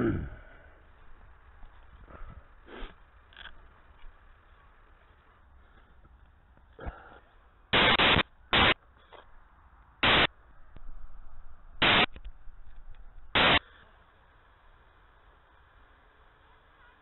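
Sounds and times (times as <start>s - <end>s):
faint hiss: 0.0s - 17.0s
harsh static bursts: 7.7s - 8.8s, 10.0s - 10.3s, 11.8s - 12.2s, 13.3s - 13.8s.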